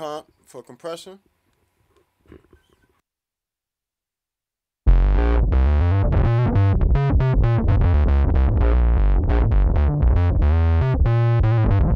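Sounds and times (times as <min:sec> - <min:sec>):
electric bass quick notes: 0:04.9 - 0:11.9.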